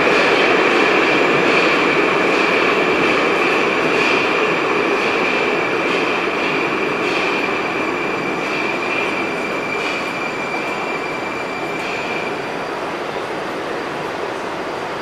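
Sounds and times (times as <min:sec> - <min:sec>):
train noisy hum: 0:00.0 - 0:15.0.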